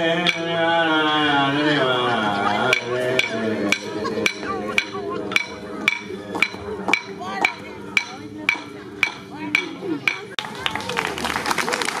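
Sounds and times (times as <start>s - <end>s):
person singing or chanting: 0.0s - 9.8s
sharp percussive strikes: 0.2s - 0.6s, 2.6s - 10.8s.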